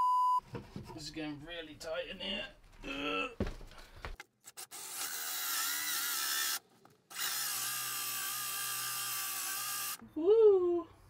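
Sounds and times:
power drill whining: 4.6 - 10.0.

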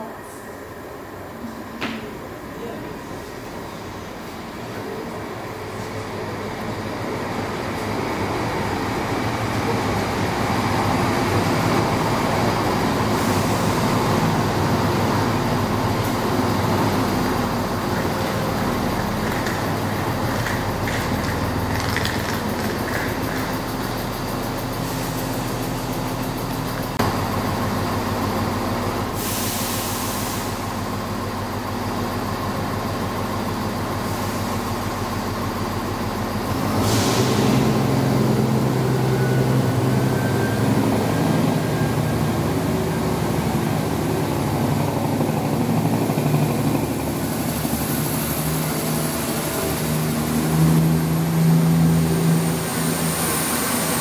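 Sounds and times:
diesel train engines humming: 0.0 - 54.0.

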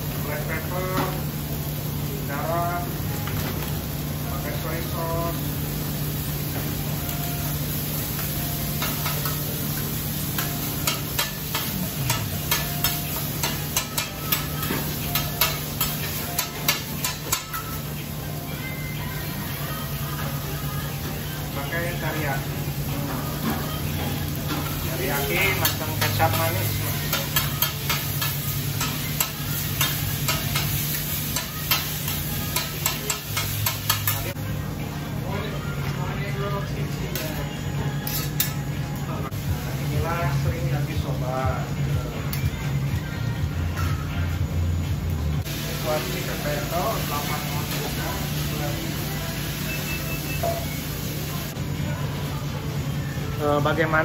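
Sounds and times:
food sizzling: 0.0 - 44.5, 45.4 - 54.0
metal spatulas clacking on griddle: 10.4 - 17.8, 27.1 - 30.8, 31.4 - 34.3, 38.0 - 38.6.

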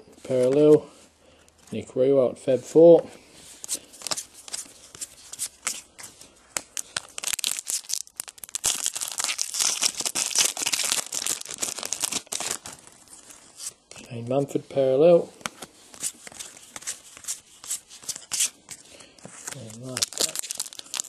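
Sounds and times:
foil wrapper tearing and crinkling: 6.6 - 13.4, 19.4 - 21.0.

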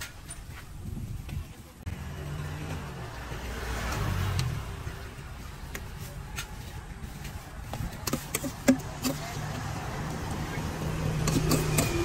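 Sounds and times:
vehicle passing close by: 1.9 - 6.3, 8.5 - 12.0.

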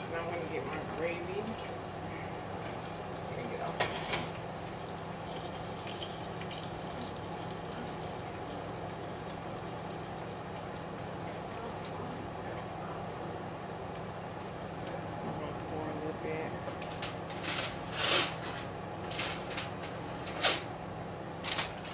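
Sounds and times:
steak sizzling in a pan: 0.0 - 14.7.

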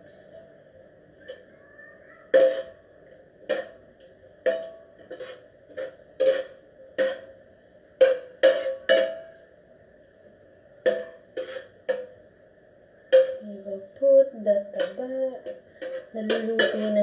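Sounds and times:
metal spatula knocking on pan: 2.3 - 2.8, 3.4 - 3.8, 4.4 - 7.4, 8.0 - 9.4, 10.8 - 12.2, 13.1 - 13.4, 14.7 - 17.0.

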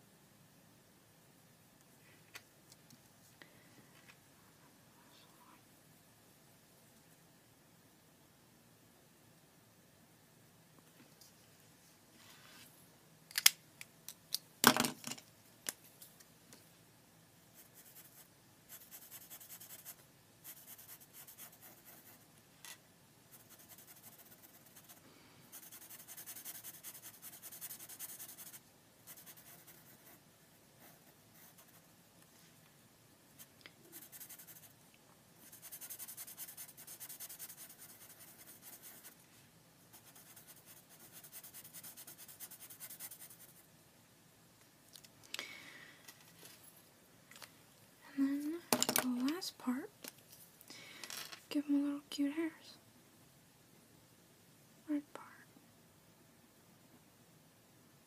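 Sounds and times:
marker scratching on paper: 17.6 - 22.2, 23.3 - 30.2, 30.8 - 31.9, 33.9 - 34.7, 35.4 - 39.2, 39.9 - 43.6.

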